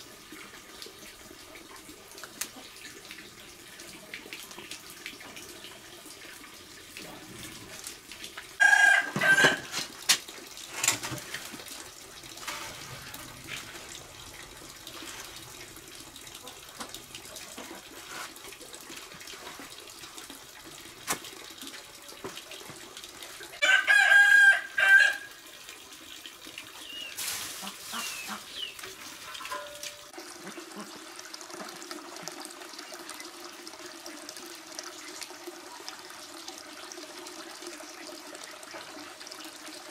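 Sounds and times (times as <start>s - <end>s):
running water: 0.0s - 39.9s
rooster crowing: 8.6s - 9.7s, 23.6s - 25.3s.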